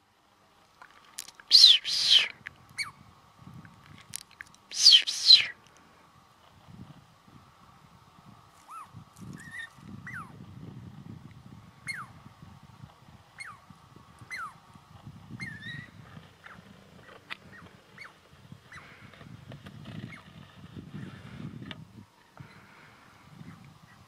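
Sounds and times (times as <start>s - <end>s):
squirrel calls: 1.4s - 3.0s, 4.7s - 5.6s, 8.6s - 10.4s, 11.8s - 12.2s, 13.4s - 14.6s, 15.4s - 19.0s.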